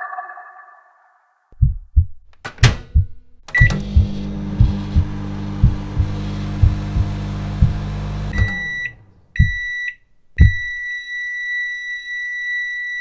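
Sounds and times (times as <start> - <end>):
dubstep beat with kick hits: 3.9 - 8.0, 10.4 - 10.7.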